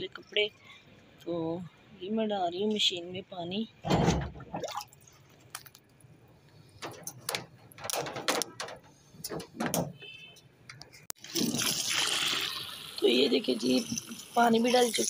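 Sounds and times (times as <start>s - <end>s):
irregular knocks and rattles: 6.7s - 10.0s.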